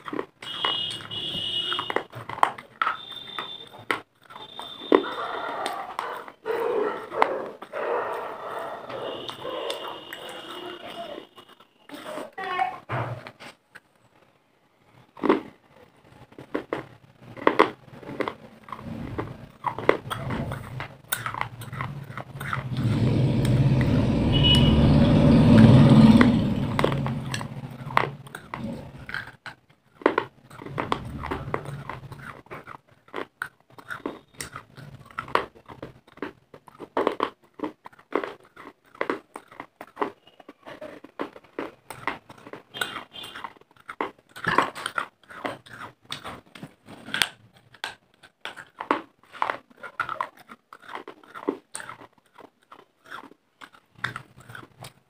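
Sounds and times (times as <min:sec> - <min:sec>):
chewing brittle clay crunches: 0:00.0 - 0:12.4, 0:15.0 - 0:55.0
loud low rumble: 0:22.8 - 0:28.2.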